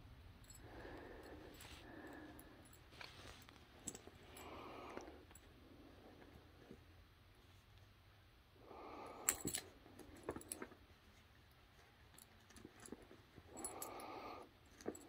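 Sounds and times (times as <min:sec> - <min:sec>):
collar clicks and jingles: 0:09.2 - 0:10.8.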